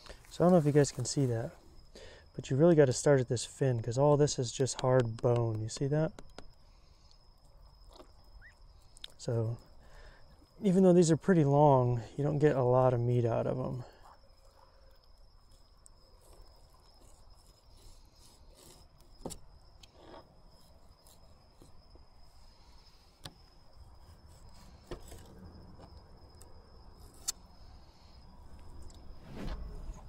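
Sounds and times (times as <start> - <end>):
sharp clicks: 4.6 - 6.6
knife scraping fish: 16.2 - 19.3.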